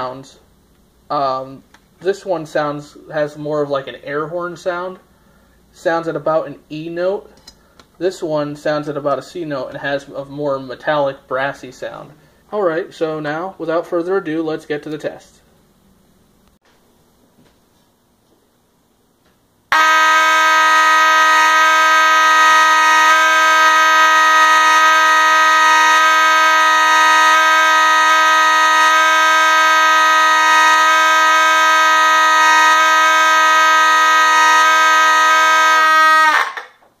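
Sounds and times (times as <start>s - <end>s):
fire alarm horns blaring: 19.7s - 36.8s.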